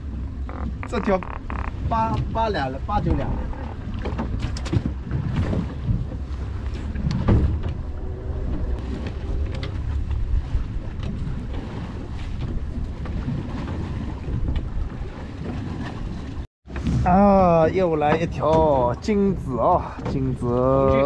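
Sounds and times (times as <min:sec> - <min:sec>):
wind on microphone: 0:00.0 - 0:19.3
boat low rumble: 0:00.0 - 0:21.0
fishing gear knocks and clicks: 0:00.4 - 0:02.2.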